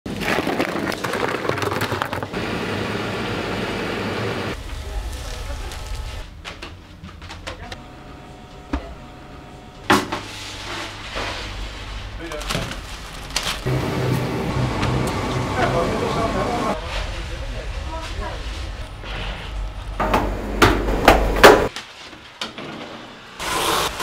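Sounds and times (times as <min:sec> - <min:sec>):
ice clattering into plastic bowl: 0:00.1 - 0:02.4.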